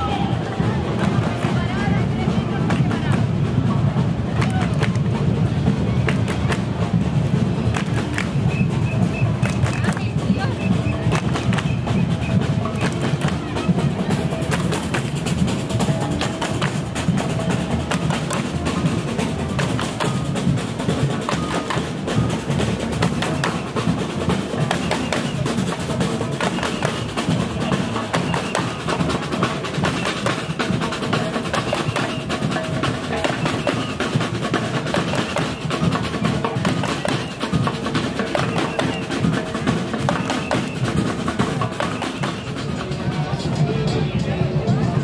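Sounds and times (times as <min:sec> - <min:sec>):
marching drums playing: 0:00.0 - 0:45.0.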